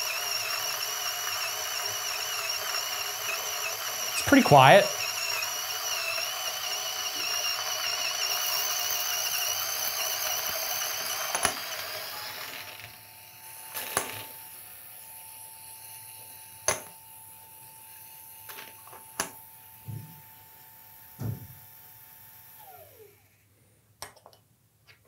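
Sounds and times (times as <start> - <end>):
coffee grinder grinding beans: 0.0 - 23.4.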